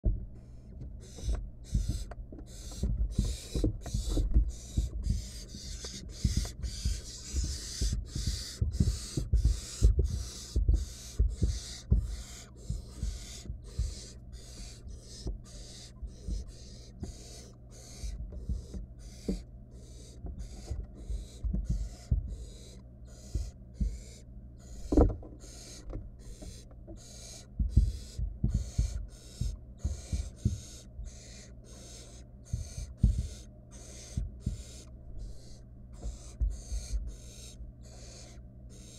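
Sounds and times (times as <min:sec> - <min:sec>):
owl nestlings hissing: 0:00.5 - 0:38.9
knocks on wooden nest-box floor: 0:01.1 - 0:19.4, 0:20.3 - 0:22.5, 0:24.8 - 0:27.0, 0:27.6 - 0:31.4, 0:32.4 - 0:34.8, 0:35.4 - 0:37.2.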